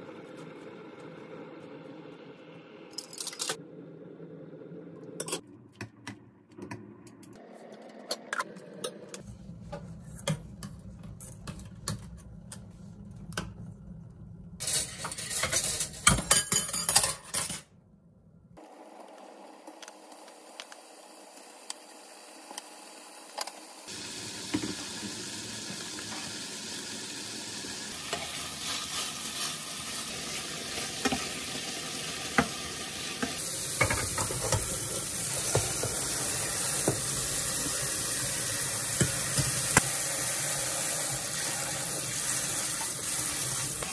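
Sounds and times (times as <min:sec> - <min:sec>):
tap water running: 0:20.1 - 0:43.9
meat sizzling in frying pan: 0:23.9 - 0:43.9.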